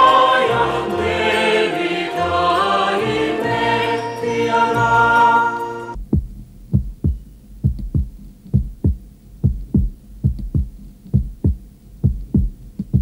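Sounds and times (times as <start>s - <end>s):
heartbeat thumps: 6.0s - 13.0s.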